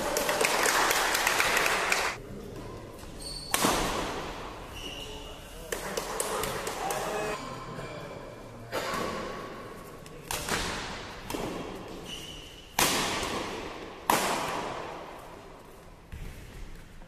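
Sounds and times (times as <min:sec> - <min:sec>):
rackets hitting shuttlecock: 0:10.2 - 0:15.3.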